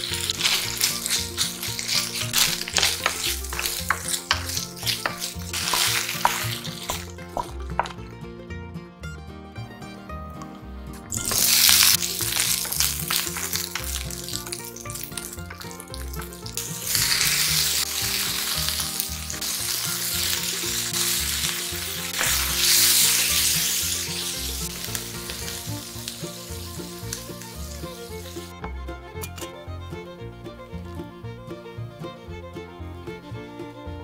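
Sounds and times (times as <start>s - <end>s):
vegetables sizzling in hot oil: 0.0s - 8.0s, 11.1s - 28.5s.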